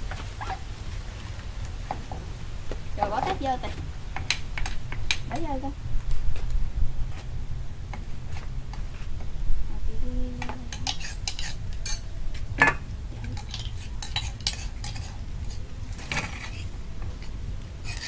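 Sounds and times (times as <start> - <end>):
steady low rumble: 0.0 - 10.9, 16.6 - 17.9.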